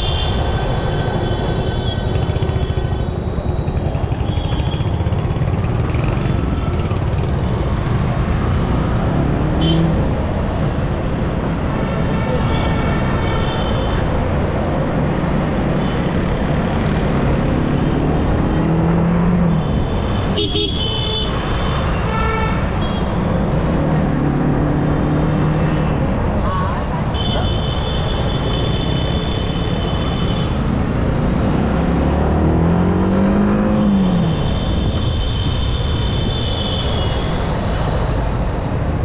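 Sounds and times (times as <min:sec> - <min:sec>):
motorcycle engine: 0:01.8 - 0:10.4
vehicle horns honking: 0:19.5 - 0:23.2.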